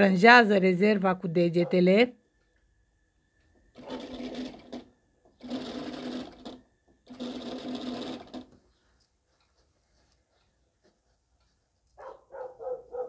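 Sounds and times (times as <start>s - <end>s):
sewing machine stitching: 3.7s - 8.7s.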